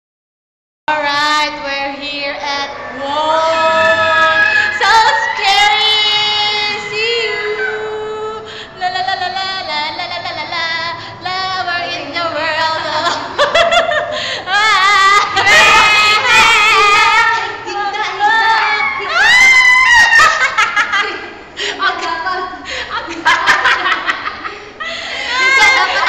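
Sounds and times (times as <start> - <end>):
women singing long held notes: 0.9 - 13.4, 14.4 - 19.4.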